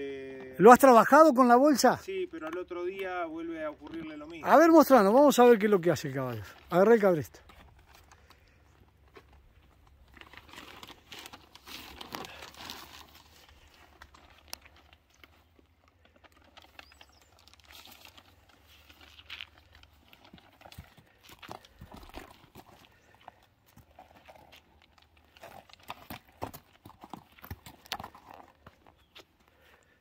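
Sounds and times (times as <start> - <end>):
plastic bag crinkling: 9.4 - 23.3.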